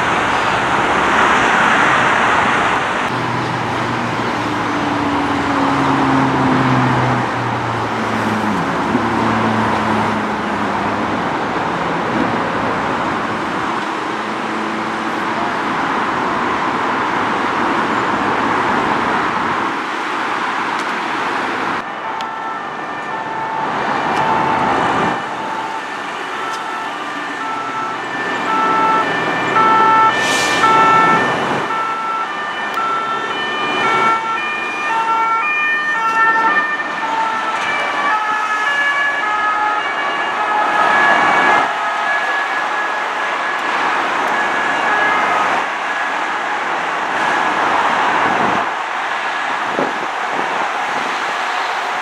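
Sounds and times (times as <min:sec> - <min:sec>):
two-tone emergency siren: 0:00.0 - 0:10.6, 0:21.8 - 0:52.0
highway traffic noise: 0:00.0 - 0:52.0.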